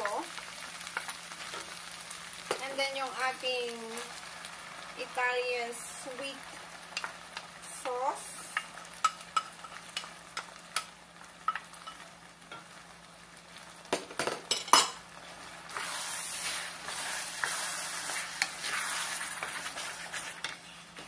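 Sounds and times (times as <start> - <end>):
sauce and meat sizzling: 0.0 - 21.0
spoon scraping pan: 15.7 - 20.7.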